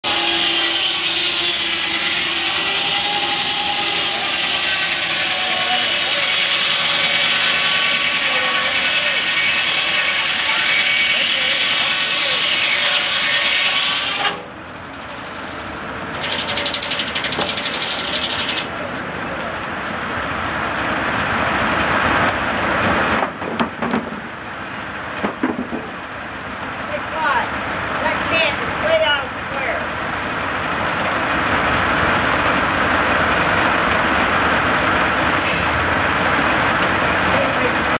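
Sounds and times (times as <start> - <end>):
circular saw ripping log: 0.0 - 18.7
sawmill running: 0.0 - 37.9.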